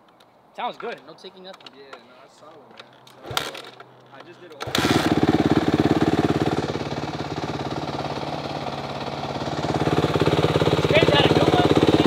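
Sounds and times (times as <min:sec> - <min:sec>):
dirt bike engine idling: 0:04.7 - 0:12.0.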